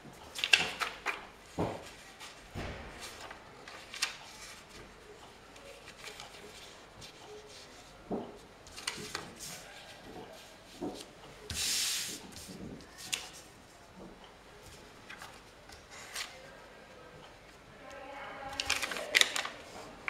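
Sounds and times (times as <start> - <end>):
paper rustling and sliding: 3.0 - 5.0, 10.4 - 13.4.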